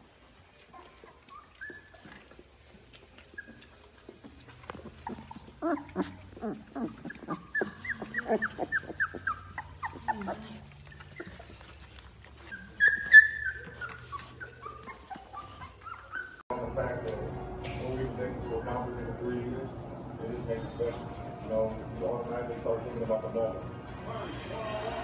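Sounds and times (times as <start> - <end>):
puppies whimpering and squeaking: 0.0 - 16.5.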